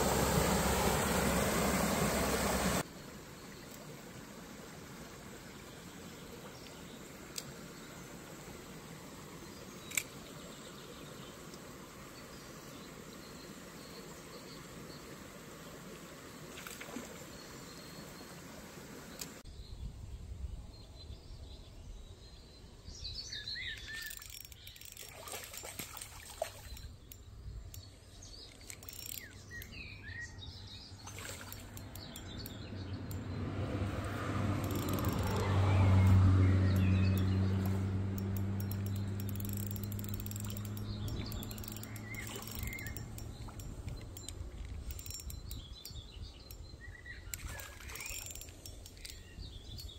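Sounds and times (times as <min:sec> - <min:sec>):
shallow stream running: 0:00.0 - 0:19.5, 0:22.8 - 0:49.9
birds chirping: 0:20.7 - 0:49.9
sharp clicks: 0:34.0 - 0:46.7.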